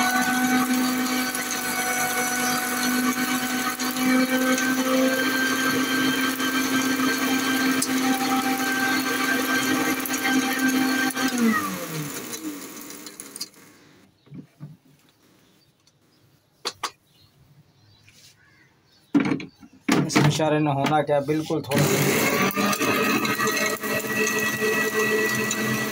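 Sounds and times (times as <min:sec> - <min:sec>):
mixer grinder running: 0:00.0 - 0:13.9, 0:21.6 - 0:25.9.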